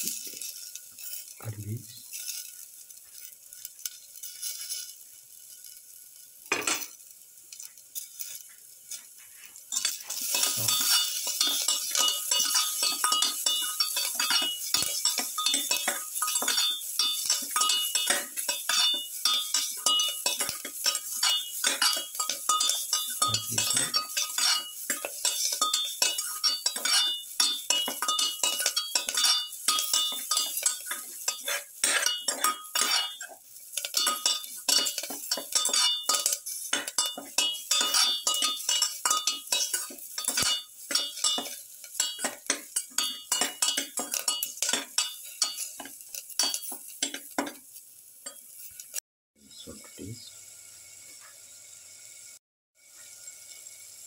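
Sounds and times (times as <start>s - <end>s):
spoon scraping a steel pot: 9.2s - 47.6s.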